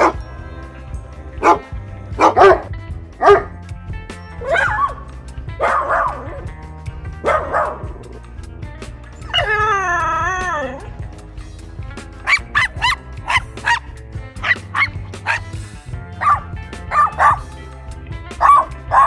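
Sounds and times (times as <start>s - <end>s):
dog barking: 0.0s - 0.2s, 1.4s - 3.6s, 4.3s - 5.0s, 5.6s - 6.5s, 7.2s - 8.0s, 12.2s - 15.5s, 16.2s - 17.5s, 18.4s - 19.0s
background music: 0.0s - 19.0s.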